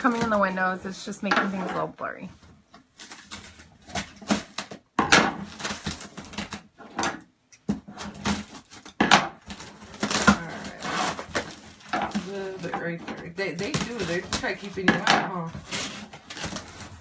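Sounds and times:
plastic packaging crinkling: 2.8s - 6.8s, 8.0s - 17.0s
cardboard scraping and tearing: 5.4s - 6.7s, 7.9s - 17.0s.

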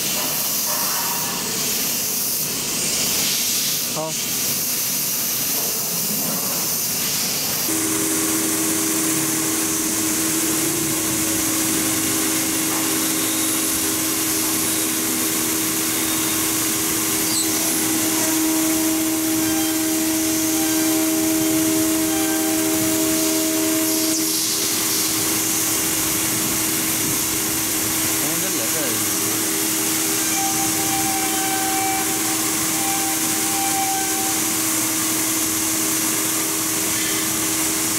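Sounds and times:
hiss of coolant spray: 0.0s - 37.9s
router spindle whine: 7.7s - 37.9s.

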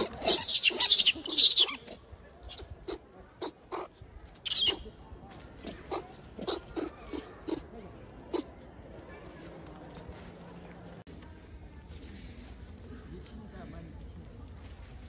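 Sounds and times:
macaques calling: 0.0s - 3.9s, 4.5s - 4.8s, 5.6s - 7.6s.

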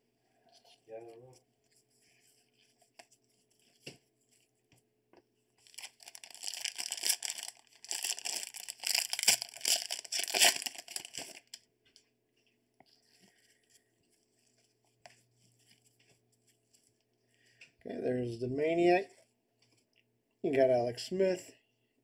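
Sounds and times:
foil wrapper crinkling and tearing: 5.6s - 11.6s.

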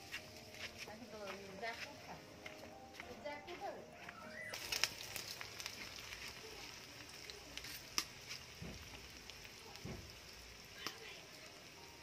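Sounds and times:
onions sizzling in hot oil: 0.0s - 12.0s
clicks and crackles: 4.4s - 10.2s.

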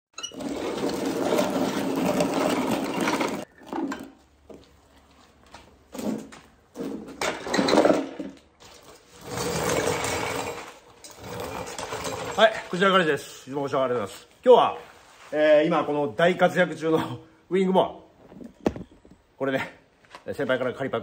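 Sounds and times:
mower rattling on concrete: 0.2s - 4.0s, 7.2s - 12.8s.

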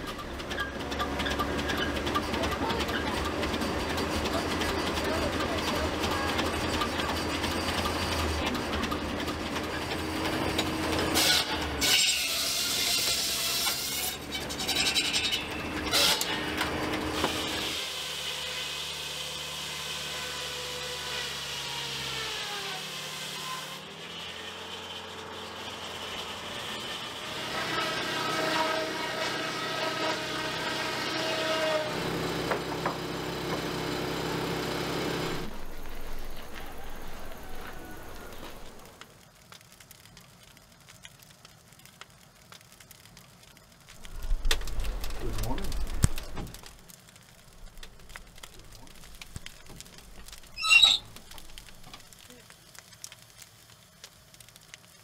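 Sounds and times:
circular saw blade whining: 0.0s - 38.9s, 49.9s - 52.1s
sawmill machinery running: 0.0s - 39.0s, 44.0s - 52.3s.

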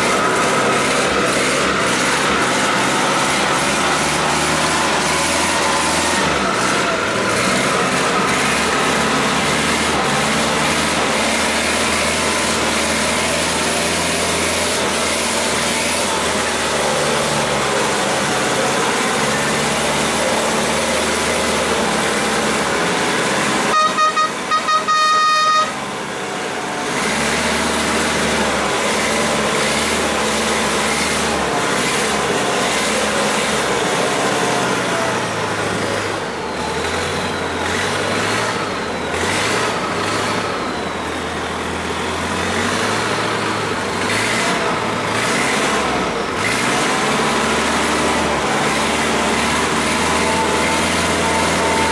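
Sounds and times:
boat engine running: 0.0s - 51.9s
horn short toots: 23.7s - 25.9s.

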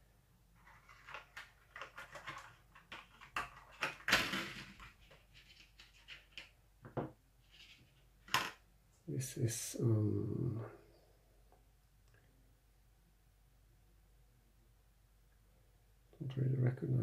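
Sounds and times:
small hard parts clattering: 0.6s - 8.6s.

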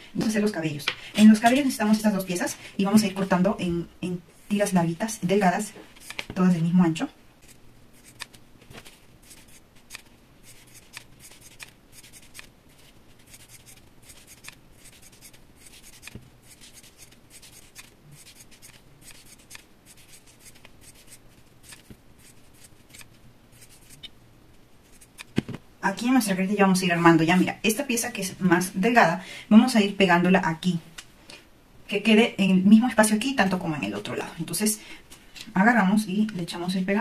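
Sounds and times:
scissors snipping foam: 7.4s - 8.4s, 9.2s - 12.5s, 13.2s - 24.1s, 24.8s - 25.6s.

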